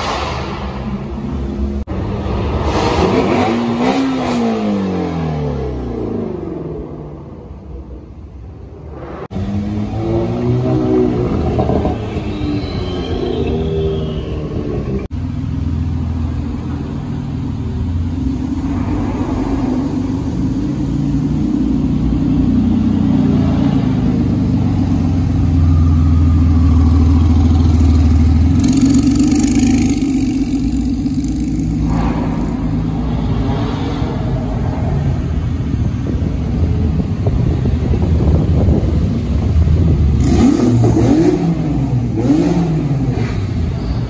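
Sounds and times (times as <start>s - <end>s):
rally car engines revving: 0.0s - 7.4s, 8.8s - 15.1s, 39.6s - 44.0s.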